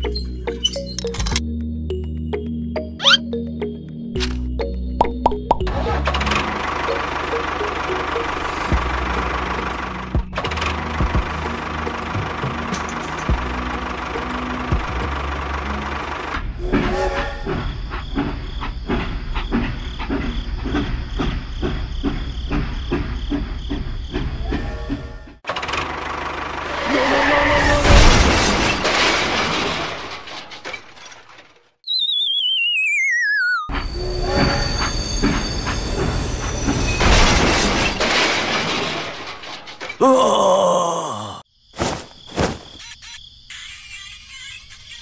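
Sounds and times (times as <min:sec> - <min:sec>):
train rushing noise: 0:10.8 - 0:25.2, 0:33.7 - 0:38.5
toy train motor whir: 0:42.8 - 0:45.0.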